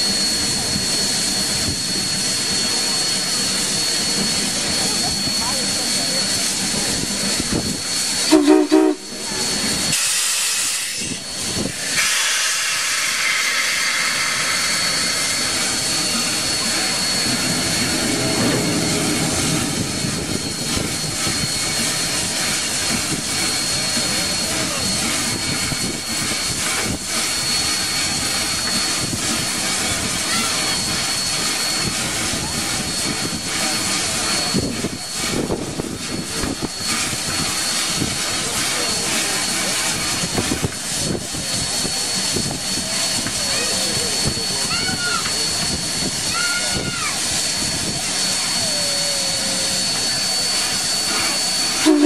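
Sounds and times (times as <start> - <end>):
steam hissing: 0.0 - 52.0
steam whistle toots: 8.1 - 9.3, 51.6 - 52.0.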